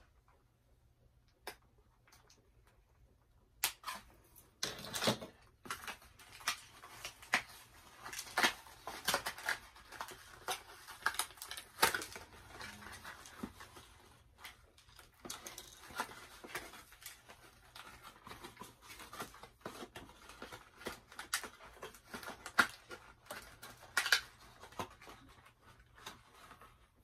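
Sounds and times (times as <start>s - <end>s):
packaging crinkling and crackling: 3.6s - 27.0s.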